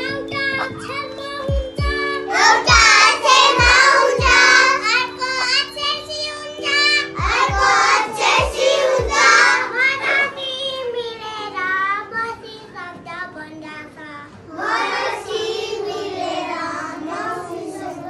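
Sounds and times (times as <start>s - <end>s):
children singing: 0.0s - 11.6s, 14.5s - 18.0s
keyboard chords: 0.0s - 13.0s.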